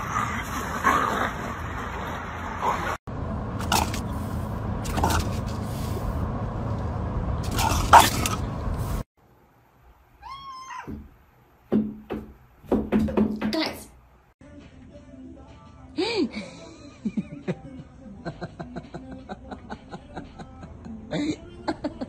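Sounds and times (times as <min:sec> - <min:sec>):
cat meowing: 0:10.2 - 0:11.0.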